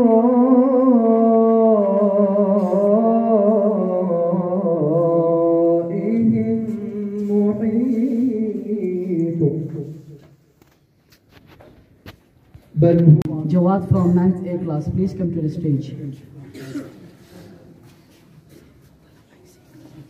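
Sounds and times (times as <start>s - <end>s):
man reciting melodically: 0.0s - 10.3s, 12.8s - 16.4s.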